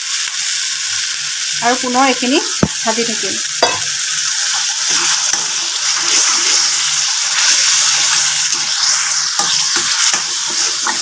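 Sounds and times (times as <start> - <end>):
masala sizzling in oil: 0.0 - 11.0
spatula scraping pan: 3.6 - 11.0
metal spatula stirring: 7.4 - 11.0.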